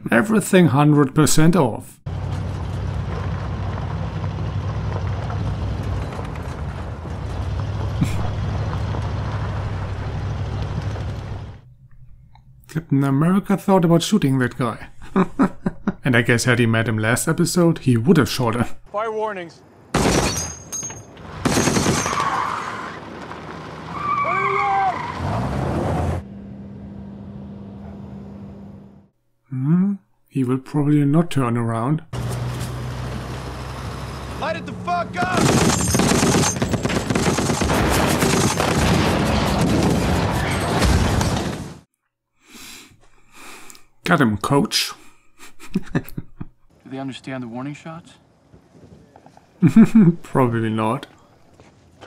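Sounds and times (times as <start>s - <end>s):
car noise: 2.1s - 12.8s, 19.7s - 29.1s, 32.1s - 41.8s
diesel engine rumbling: 2.1s - 17.0s, 32.1s - 37.2s
steady low hum: 8.0s - 16.0s
tyre squeal: 23.9s - 25.6s
loud gunshot: 35.2s - 41.6s.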